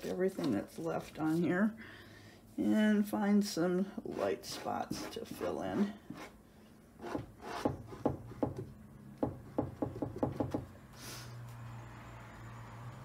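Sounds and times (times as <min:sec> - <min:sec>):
tool scraping paint: 0:04.0 - 0:06.4, 0:07.0 - 0:08.2.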